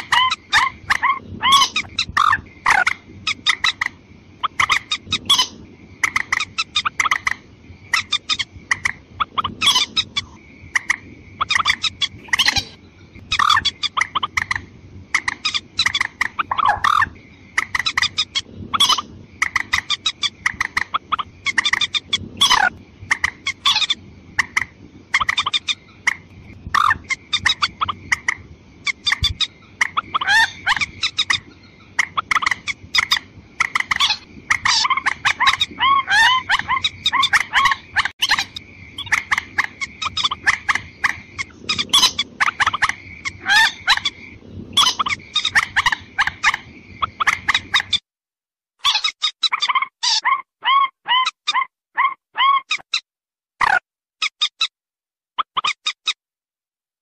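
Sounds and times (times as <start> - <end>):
rapid sharp clucking call: 0.0 - 14.6, 15.2 - 44.2.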